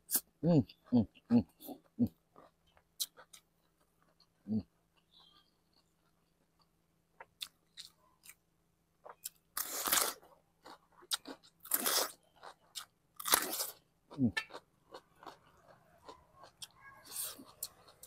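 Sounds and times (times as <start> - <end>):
crunching bites of gourd: 9.1 - 18.0.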